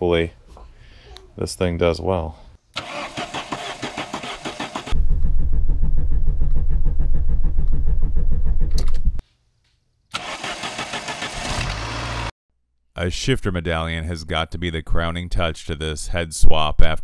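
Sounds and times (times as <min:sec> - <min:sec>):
starter cranking engine: 0:02.8 - 0:05.0, 0:10.2 - 0:12.3
engine running with low rumble: 0:05.0 - 0:09.2.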